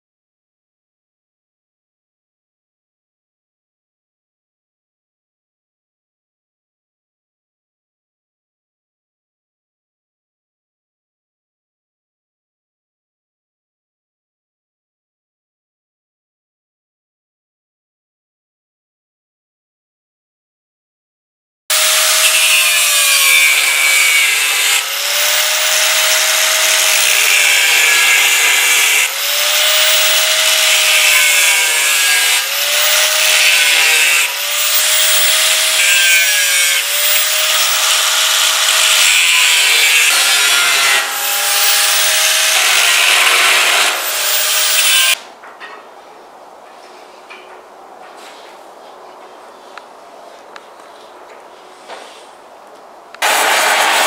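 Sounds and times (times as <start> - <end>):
angle grinder cutting steel: 21.7 - 45.2, 53.2 - 54.0.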